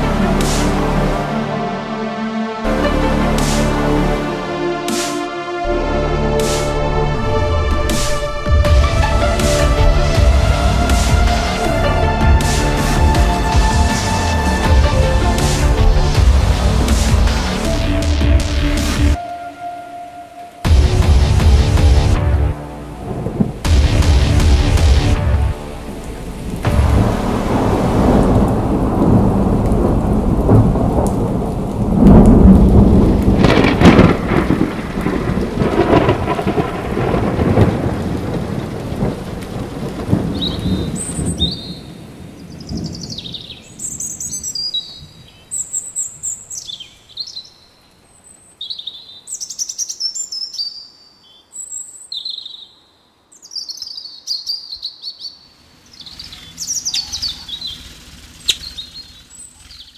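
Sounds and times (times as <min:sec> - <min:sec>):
steady rain: 0:02.6 - 0:49.3, 0:55.5 - 0:59.9
rolling thunder: 0:20.7 - 0:43.6
birdsong chirps and whistles: 0:40.3 - 0:59.9.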